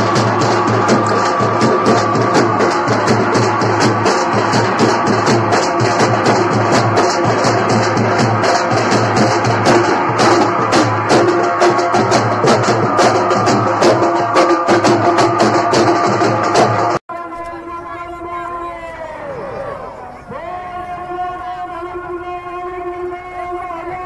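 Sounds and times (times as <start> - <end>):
procession drums playing: 0.0 - 18.6.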